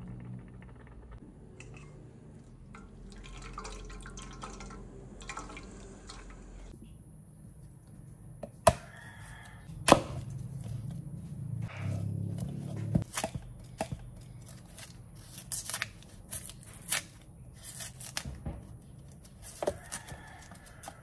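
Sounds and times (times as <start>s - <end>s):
juice dripping through strainer: 2.4s - 6.7s.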